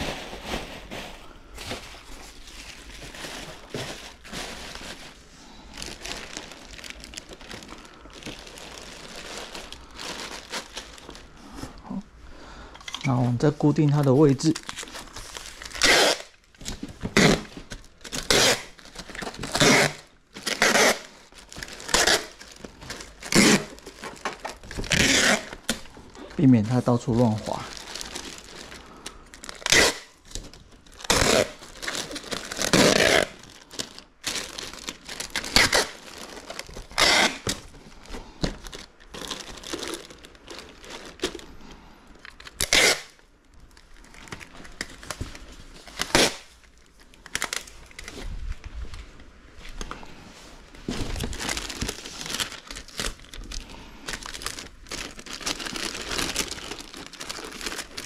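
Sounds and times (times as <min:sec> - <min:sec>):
bubble wrap crinkling: 0:00.0 - 0:12.0, 0:13.0 - 0:58.0
sharp tearing: 0:42.6 - 0:43.2.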